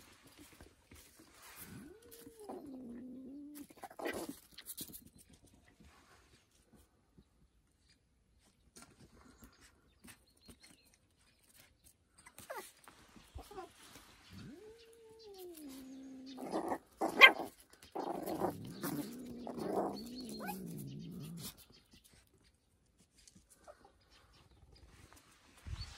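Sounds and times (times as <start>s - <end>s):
puppy growling cries: 14.3s - 21.6s.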